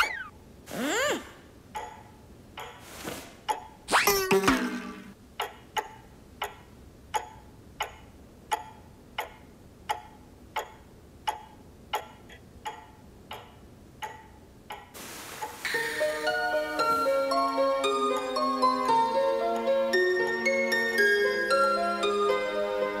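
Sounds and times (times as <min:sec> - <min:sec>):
hiss: 0:15.0 - 0:17.3.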